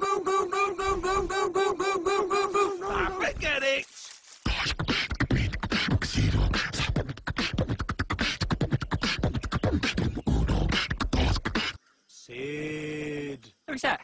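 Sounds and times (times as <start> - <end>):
human beatboxing: 4.5 - 11.8.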